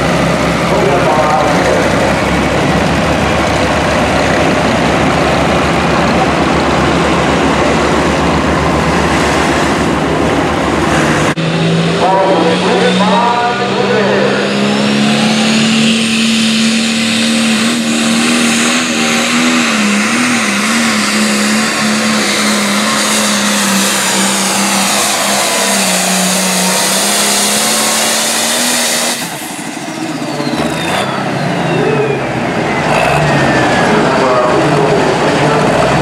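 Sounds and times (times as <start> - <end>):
diesel tractor engine at full throttle: 0.0 - 36.0
high turbo whine: 0.0 - 36.0.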